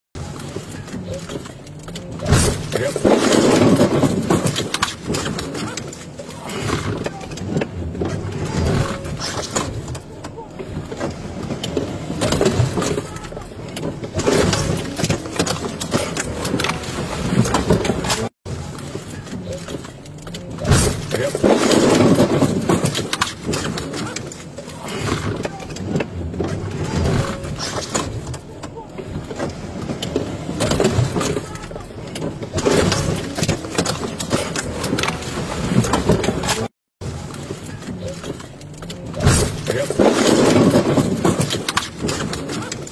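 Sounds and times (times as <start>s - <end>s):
car engines running: 0.2s - 42.9s
knocks and bangs of vehicles: 0.2s - 42.9s.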